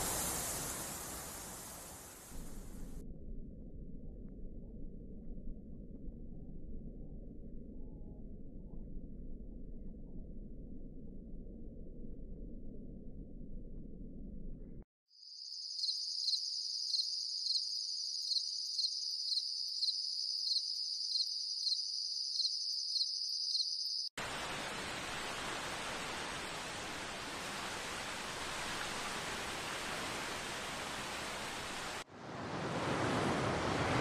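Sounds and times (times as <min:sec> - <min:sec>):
waterfall rushing: 0:00.0 - 0:02.3, 0:24.2 - 0:34.0
high insect trill: 0:15.1 - 0:24.1
low wind rumble: 0:24.3 - 0:34.0.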